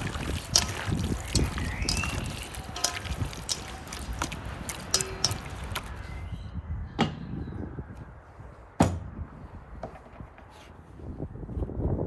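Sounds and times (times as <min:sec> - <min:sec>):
hands squishing raw meat: 0:00.0 - 0:06.0.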